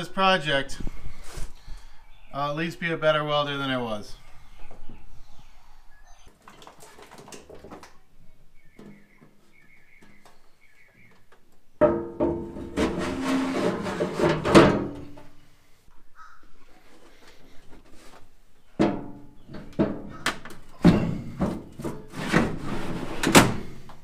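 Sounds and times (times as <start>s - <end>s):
metal clunking and scraping: 11.2s - 15.4s, 16.9s - 24.0s.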